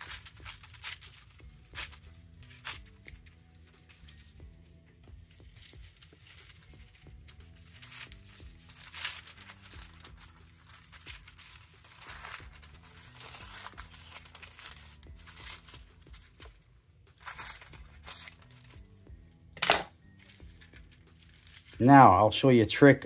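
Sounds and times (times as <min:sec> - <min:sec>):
scissors snipping paper: 0:00.0 - 0:03.4, 0:07.6 - 0:16.5
paper rustling and crinkling: 0:00.0 - 0:04.4, 0:05.2 - 0:18.9, 0:19.6 - 0:22.1
quiet background music: 0:00.0 - 0:23.0.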